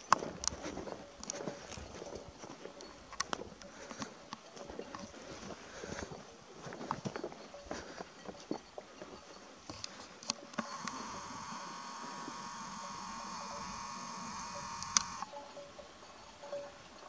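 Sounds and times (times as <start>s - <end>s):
small electric motor buzzing: 10.5s - 15.4s.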